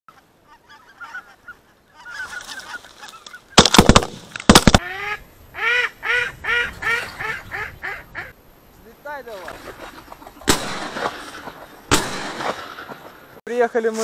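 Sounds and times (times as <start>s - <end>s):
geese calling: 0.1s - 3.7s, 4.8s - 12.4s
shotgun shots: 3.6s - 4.8s, 10.4s - 13.2s.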